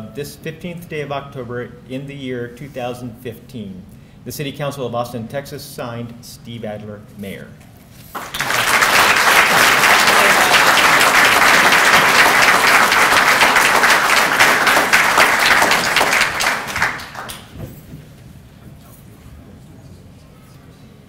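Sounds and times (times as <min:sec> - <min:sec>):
audience applauding: 0:08.1 - 0:17.5.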